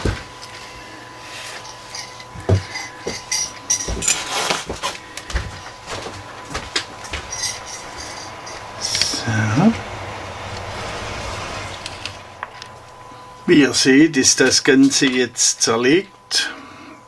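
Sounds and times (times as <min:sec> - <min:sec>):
metal parts scraping: 0:01.4 - 0:04.7, 0:07.2 - 0:09.3.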